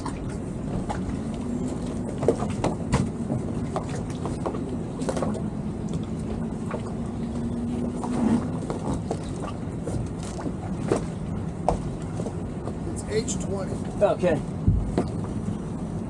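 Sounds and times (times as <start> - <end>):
boat engine low rumble: 0.0 - 16.0
knocks and clicks from lines and fenders: 2.1 - 5.4, 8.0 - 12.8, 14.6 - 15.4.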